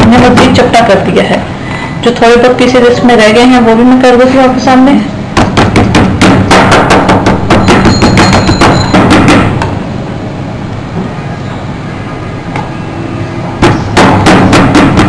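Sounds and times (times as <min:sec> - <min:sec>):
mallet pounding meat on board: 0:05.4 - 0:09.7, 0:13.6 - 0:15.0.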